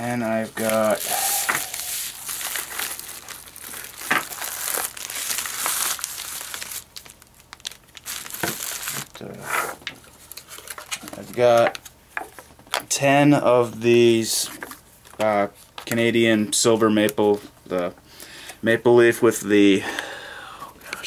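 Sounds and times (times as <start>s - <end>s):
paper and plastic crinkling: 0.0s - 9.3s, 10.2s - 12.8s.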